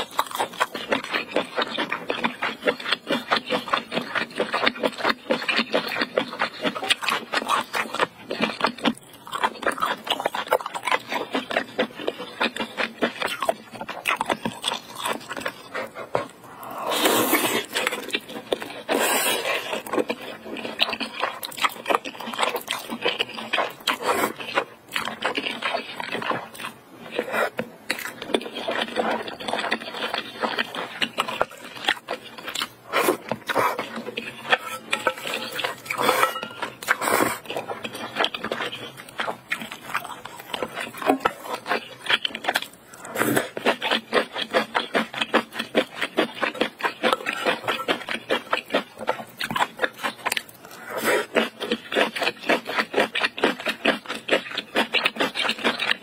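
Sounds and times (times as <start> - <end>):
wet chewing and lip smacking: 0.0 - 16.6, 17.3 - 56.0
noodles slurped noisily: 14.4 - 56.0.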